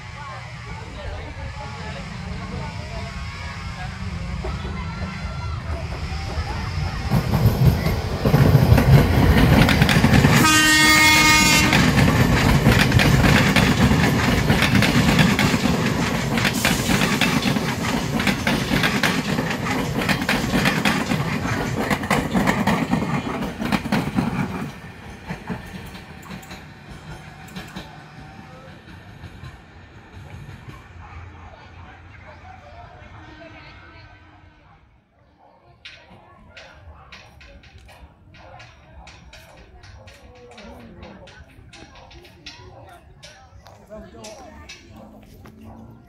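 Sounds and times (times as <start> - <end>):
train wheels rumbling on rails: 0.0 - 34.3, 35.8 - 46.0
train horn blast: 10.2 - 12.2.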